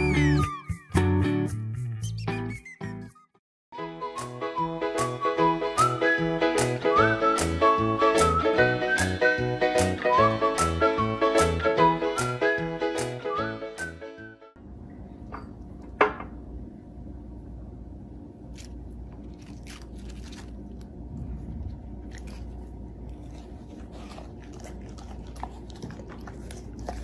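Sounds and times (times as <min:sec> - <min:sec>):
low room hum: 0:14.6 - 0:27.0
lettuce crunching being chewed: 0:18.5 - 0:27.0.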